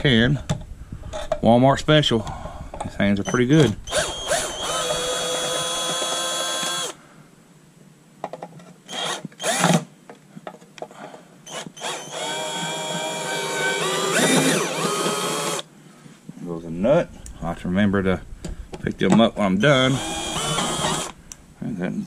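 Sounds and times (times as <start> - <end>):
cordless drill whining: 3.8 - 7.0, 8.9 - 9.8, 11.4 - 15.7, 19.6 - 21.4.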